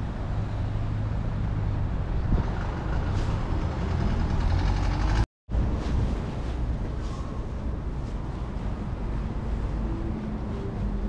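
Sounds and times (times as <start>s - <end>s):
vehicle engines rumbling: 0.0s - 11.0s
vehicle pulling away: 1.6s - 5.2s.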